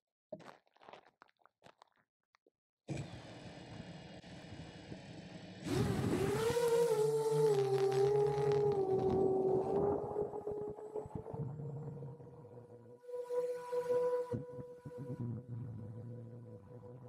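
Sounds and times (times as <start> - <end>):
drone propeller whine: 3.1 - 13.0.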